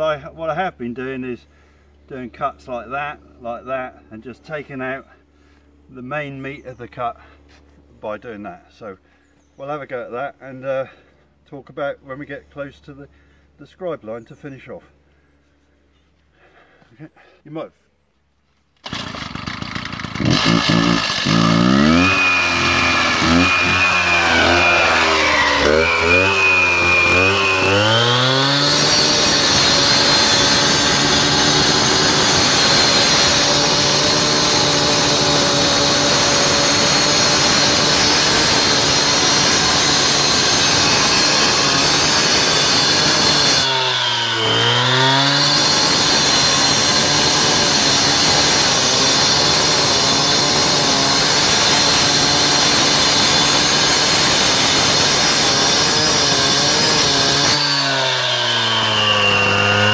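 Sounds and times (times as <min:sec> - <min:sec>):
cut-off saw cutting stone: 0:18.8 - 0:59.9.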